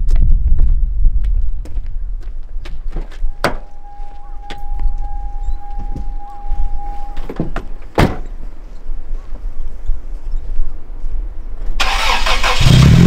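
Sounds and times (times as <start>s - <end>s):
low wind rumble on microphone: 0.0s - 11.8s
steady warning tone: 3.1s - 8.0s
car door slammed shut: 7.4s - 8.2s.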